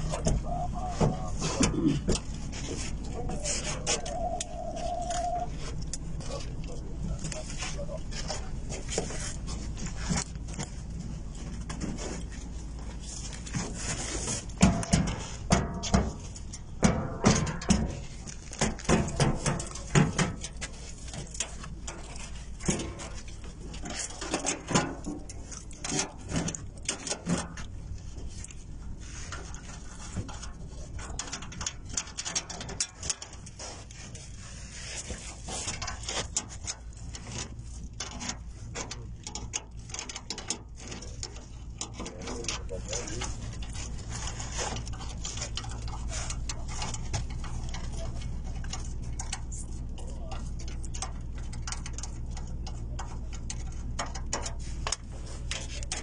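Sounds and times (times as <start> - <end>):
handling clicks and rustling: 0.0 - 56.0
low steady hum: 0.0 - 56.0.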